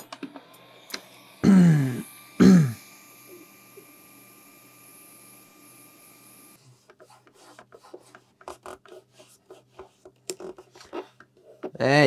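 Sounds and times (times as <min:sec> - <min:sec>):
air hose whine and hiss: 0:00.0 - 0:06.6.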